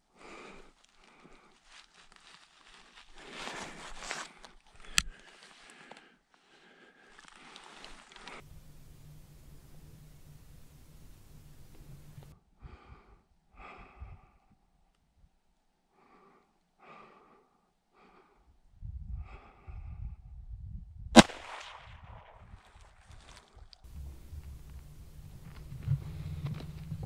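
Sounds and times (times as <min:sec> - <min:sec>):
handling and wind rumble: 0:08.3 - 0:12.3, 0:23.9 - 0:27.0
rifle shot with echo: 0:21.2 - 0:22.4.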